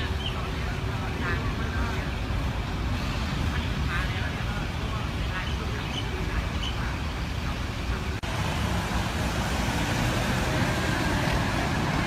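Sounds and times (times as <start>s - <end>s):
outdoor background rumble: 0.0s - 12.0s.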